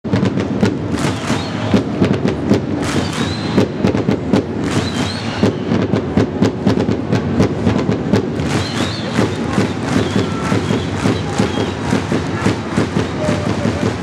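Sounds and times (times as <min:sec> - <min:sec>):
crowd chanting and clapping: 0:00.1 - 0:14.0
short high whistles: 0:01.1 - 0:01.8, 0:02.9 - 0:03.8, 0:04.7 - 0:05.8, 0:08.4 - 0:12.0.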